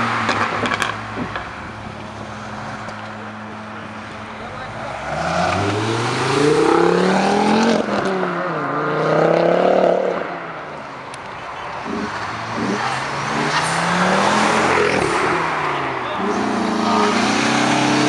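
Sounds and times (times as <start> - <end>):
car engine accelerating hard: 11.8 - 18.0.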